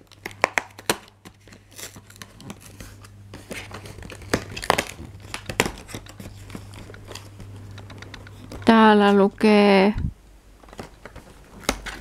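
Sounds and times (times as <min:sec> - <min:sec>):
paperboard crinkling and tearing: 0:00.0 - 0:07.4.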